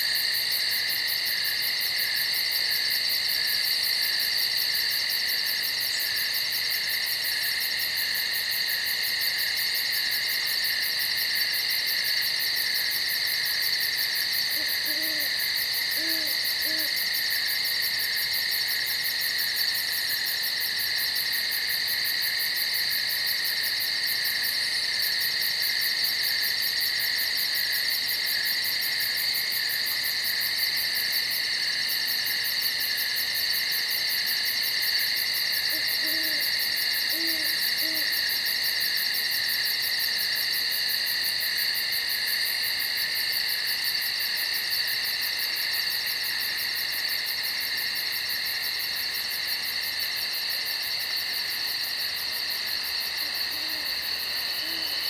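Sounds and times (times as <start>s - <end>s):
chorus of night insects: 0.0s - 55.0s
owl hooting: 14.5s - 17.0s, 35.7s - 38.2s, 53.2s - 53.9s, 54.5s - 55.0s.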